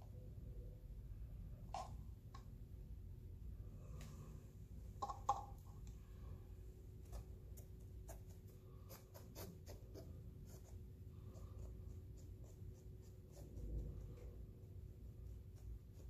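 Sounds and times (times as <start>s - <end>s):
faint hum: 0.0s - 16.0s
wooden stick scratching a board: 7.1s - 14.4s.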